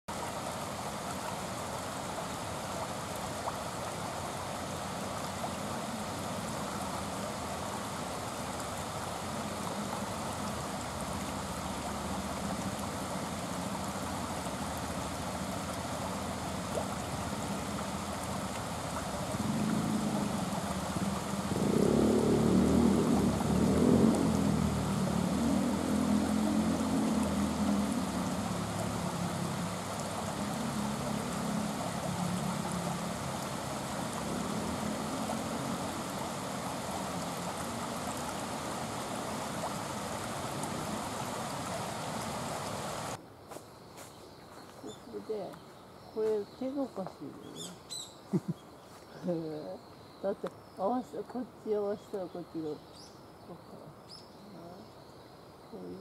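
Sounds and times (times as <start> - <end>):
river water rushing over a weir: 0.1 - 43.2.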